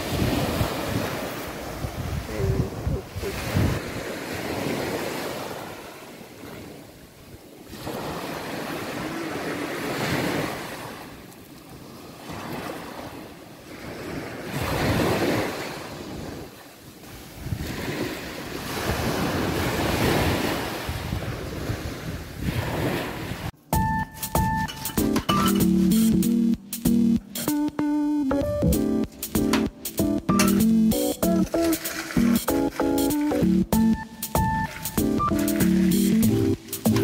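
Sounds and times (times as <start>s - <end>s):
wind buffeting microphone: 0.0s - 5.7s, 14.5s - 23.6s
sea waves washing up beach: 0.0s - 23.6s, 29.8s - 37.0s.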